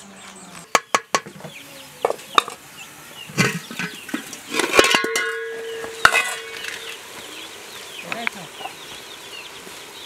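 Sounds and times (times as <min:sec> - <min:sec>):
metal pots clanking: 0:00.7 - 0:02.6, 0:03.2 - 0:07.1
pot ringing metallic tone: 0:03.5 - 0:07.0.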